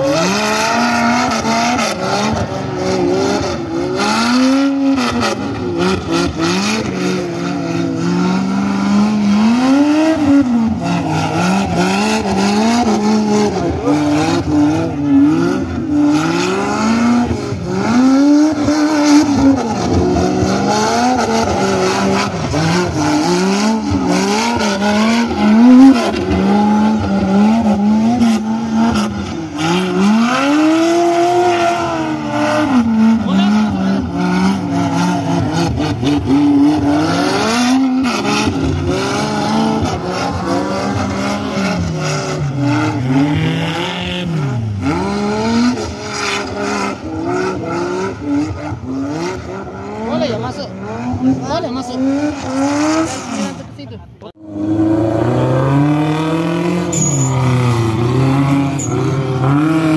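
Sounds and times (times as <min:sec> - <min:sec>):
buggy engine revving: 0:00.0 - 0:59.9.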